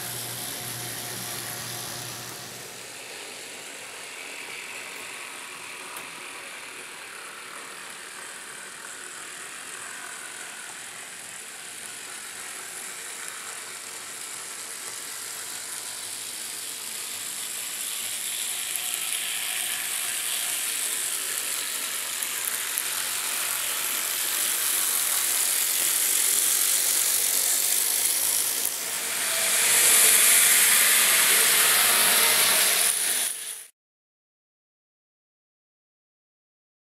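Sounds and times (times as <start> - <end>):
model train running on track: 0.0 - 33.7.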